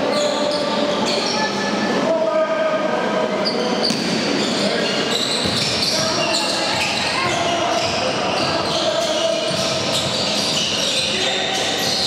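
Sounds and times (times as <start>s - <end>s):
murmur of crowd: 0.0s - 12.0s
sports shoes squeaking on floor: 3.4s - 12.0s
ball bouncing: 3.8s - 4.2s, 5.4s - 6.0s.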